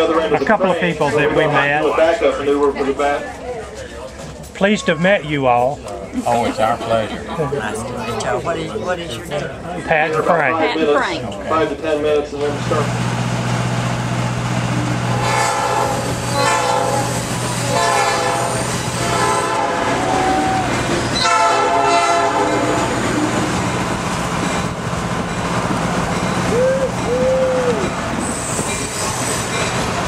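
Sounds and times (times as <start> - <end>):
train rumbling along track: 11.3 - 30.0
locomotive air horn blasts: 15.1 - 23.3.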